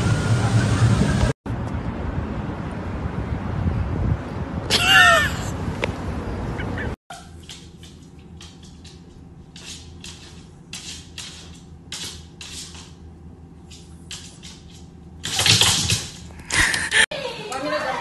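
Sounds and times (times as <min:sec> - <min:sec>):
low room hum: 0:06.1 - 0:18.0
dog claws tapping on wooden floor: 0:07.4 - 0:13.0, 0:13.7 - 0:16.2.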